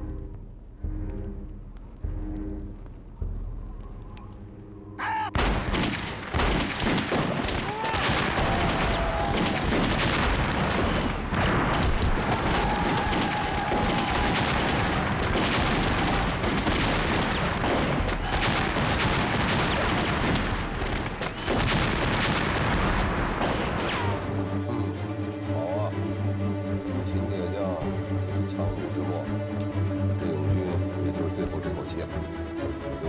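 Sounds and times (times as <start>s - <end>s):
rifle and machine-gun fire: 5.4s - 24.1s.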